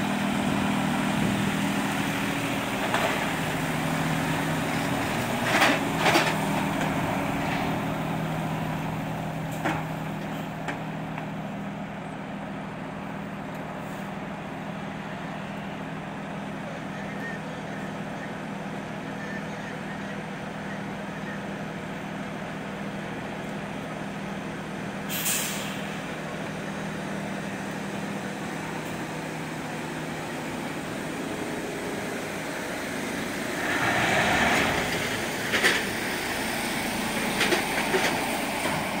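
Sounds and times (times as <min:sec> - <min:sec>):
truck diesel engine running: 0:00.0 - 0:39.0
air brake hiss: 0:25.1 - 0:26.1.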